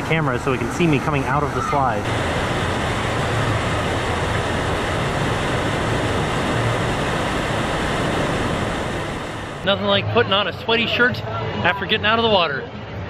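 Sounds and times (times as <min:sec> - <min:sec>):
water rushing down a slide: 0:01.4 - 0:09.6.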